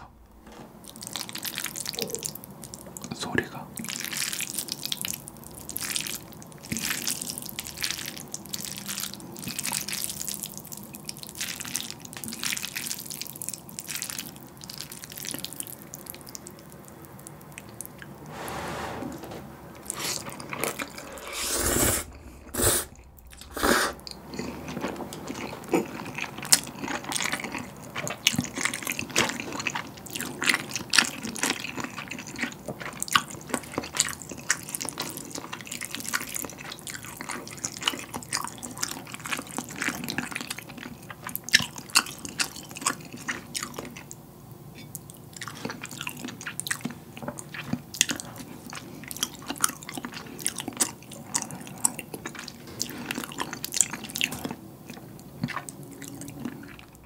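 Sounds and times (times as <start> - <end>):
loud slurping of noodles: 18.2 - 24.1
wet chewing with mouth smacks: 44.8 - 57.0.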